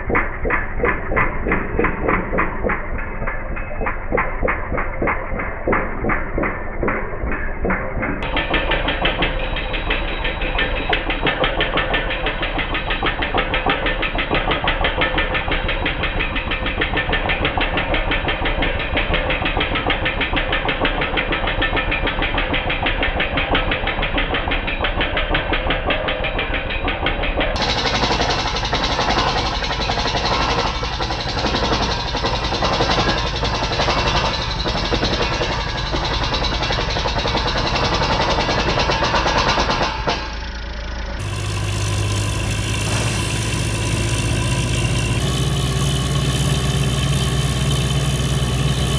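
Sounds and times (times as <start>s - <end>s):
air hammer rapid knocking: 0.0s - 45.4s
engine and compressor running: 0.0s - 48.9s
compressed air blasting: 41.2s - 46.9s.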